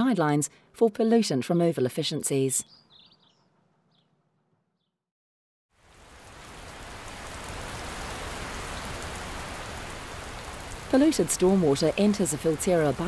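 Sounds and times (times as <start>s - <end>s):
faint bird chirps: 2.6s - 5.0s
steady rain: 5.7s - 13.0s.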